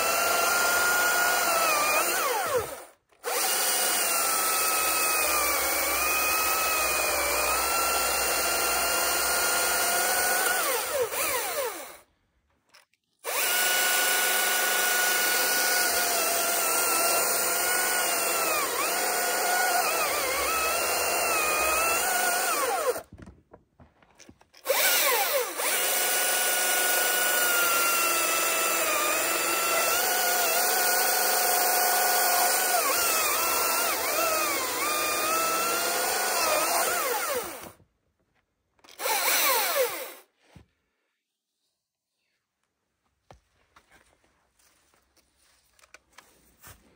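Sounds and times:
chainsaw cutting into log: 0.0 - 12.1, 13.2 - 23.1, 24.6 - 37.8, 38.9 - 40.3.

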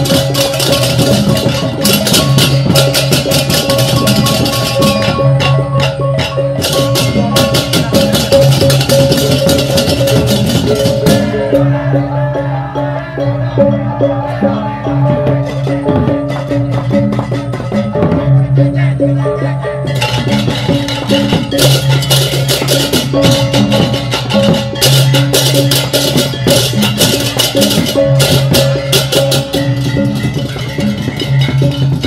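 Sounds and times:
rapid clashing cymbals: 0.0 - 11.5, 19.9 - 32.0
drums: 0.0 - 32.0
gongs and gong-chimes: 0.0 - 32.0.

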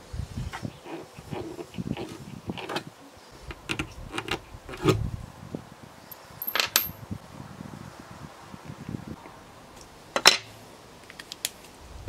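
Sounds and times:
pins clicking and tapping: 3.5 - 4.9, 6.1 - 7.0
bright metallic clinks: 6.1 - 7.0.

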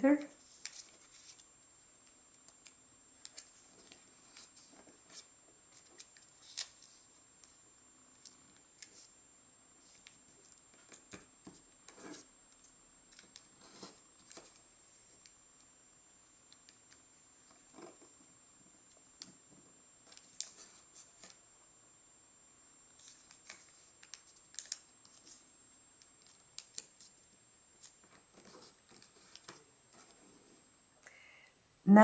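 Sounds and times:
paper crinkling as folded: 0.4 - 1.5, 3.2 - 7.6, 23.0 - 25.4.

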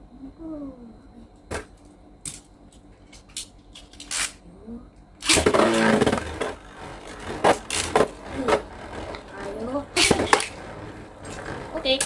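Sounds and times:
whirring rip of spinning top launcher: 4.0 - 4.4, 5.2 - 12.0.

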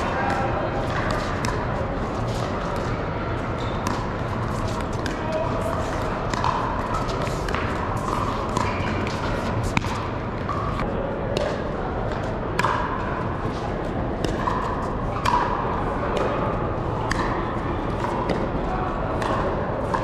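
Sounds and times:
murmur of players: 0.0 - 20.0
paddles hitting plastic ball: 3.8 - 11.6.

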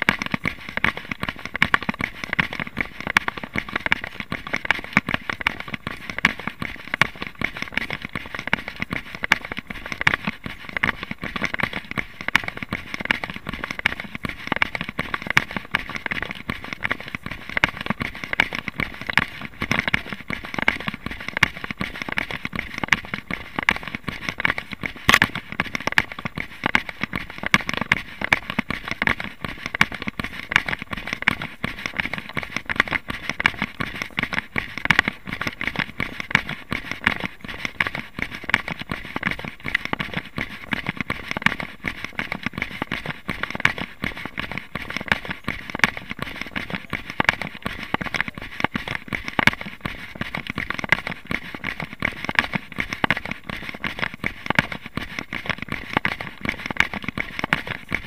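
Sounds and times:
footfalls on trail: 23.7 - 25.5
camera crackling and clicking: 25.0 - 25.4.

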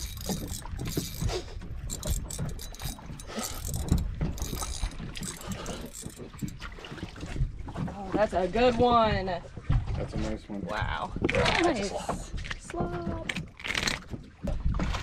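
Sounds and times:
fishing reel clicking whir: 0.0 - 6.6.

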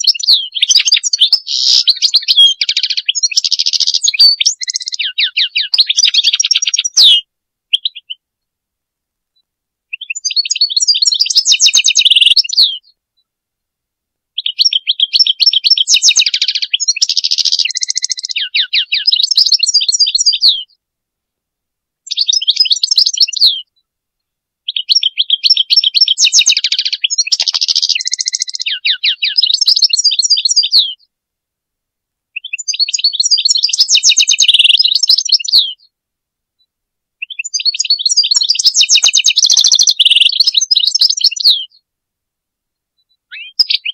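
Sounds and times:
goldfinch twittering song: 0.0 - 8.2, 9.9 - 12.9, 14.4 - 20.7, 22.1 - 23.7, 24.7 - 31.0, 32.4 - 35.9, 37.2 - 41.8, 43.3 - 43.9.

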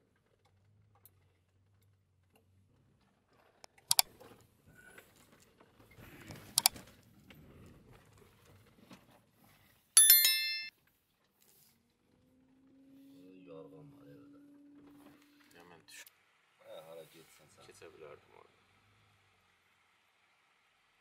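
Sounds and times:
sharp clicks: 6.6 - 6.8
metallic bell-like ring: 10.0 - 10.7.

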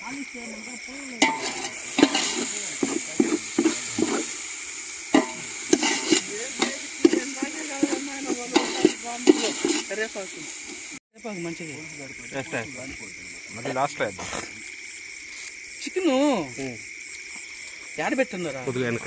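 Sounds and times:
frying sizzle: 0.3 - 12.6
spoon scraping metal pot: 1.2 - 11.0.

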